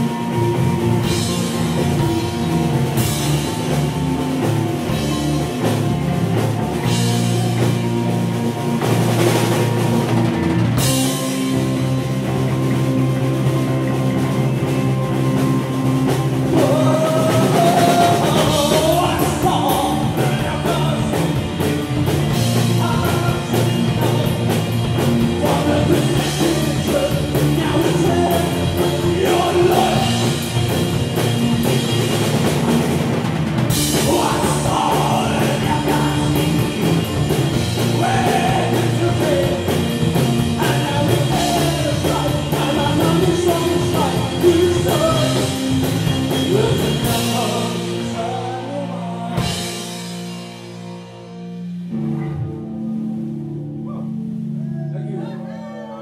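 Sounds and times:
drum kit: 0.0s - 54.6s
bass guitar: 0.0s - 56.0s
electric guitars: 0.0s - 56.0s
person singing: 16.4s - 30.6s, 33.8s - 45.7s, 46.4s - 49.8s.

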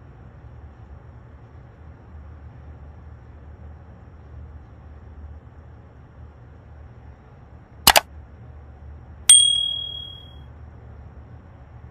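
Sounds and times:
bell ding: 9.3s - 10.3s
double mouse click: 9.4s - 10.2s.

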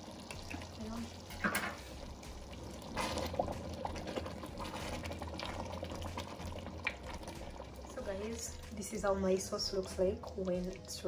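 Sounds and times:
sauce bubbling in a pot: 0.0s - 11.0s.

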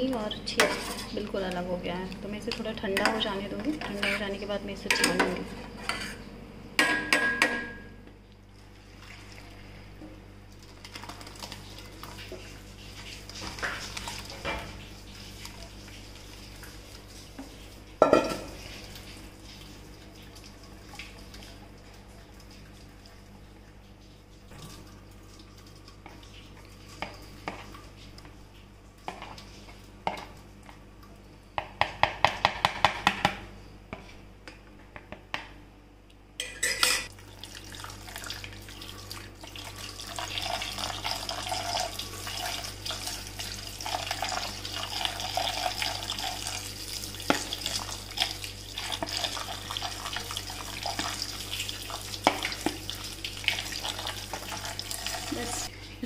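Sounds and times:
tap water running into bowl: 37.1s - 55.7s.

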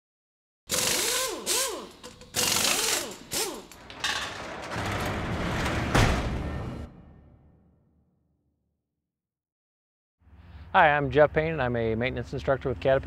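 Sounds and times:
mechanical clicking and ratcheting: 0.7s - 4.0s.

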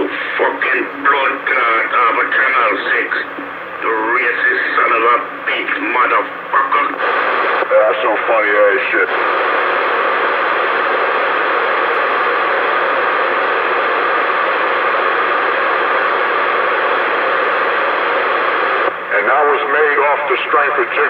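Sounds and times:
speech over radio: 0.0s - 9.2s, 19.1s - 21.0s
radio static hiss: 0.0s - 21.0s.

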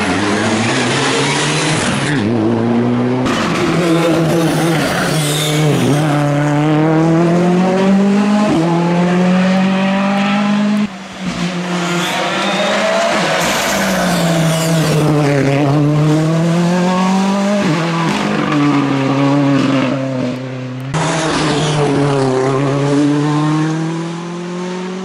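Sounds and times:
rally car engines revving: 0.0s - 25.0s.

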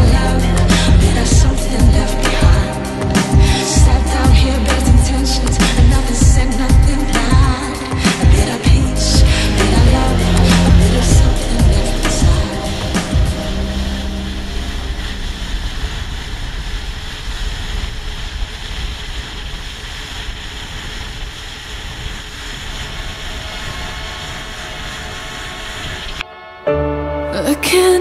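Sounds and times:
song: 0.0s - 16.2s, 26.2s - 28.0s
wind and water rushing: 0.0s - 26.2s.

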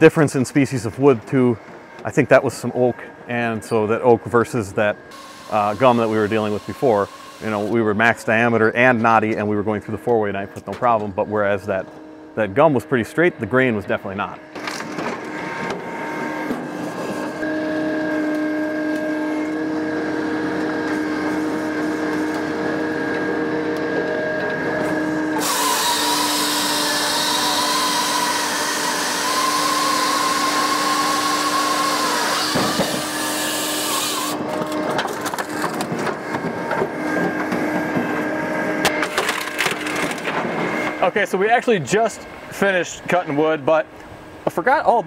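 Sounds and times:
machine mechanical hum: 0.0s - 45.0s
saw chain cutting log: 5.1s - 8.1s, 24.9s - 36.2s.

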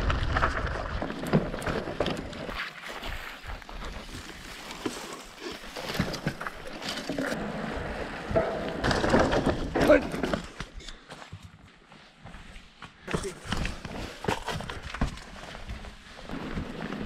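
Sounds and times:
bike clicks and rattles: 0.0s - 2.6s
bike tyres on rough trail: 0.0s - 17.0s.

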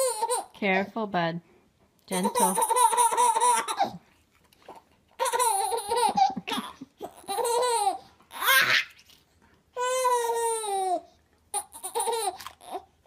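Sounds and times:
baby laughing: 0.0s - 0.6s, 2.2s - 4.0s, 5.2s - 9.0s, 9.8s - 12.9s.

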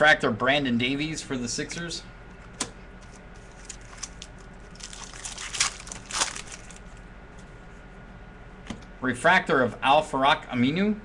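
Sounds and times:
trading cards rustling and sliding: 3.0s - 7.0s.

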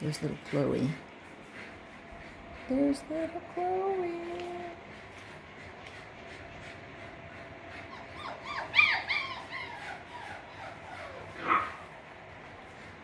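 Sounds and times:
puppies yipping and whimpering: 7.8s - 11.9s
puppy yelping: 7.9s - 11.9s.

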